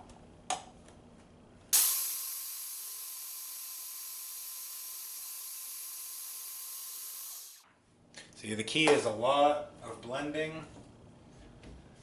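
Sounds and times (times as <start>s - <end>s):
food processor motor whirring: 1.8s - 7.6s.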